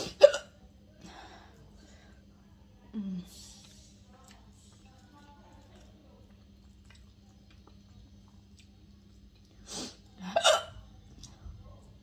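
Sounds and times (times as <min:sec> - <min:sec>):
woman hiccuping: 0:10.3 - 0:10.7.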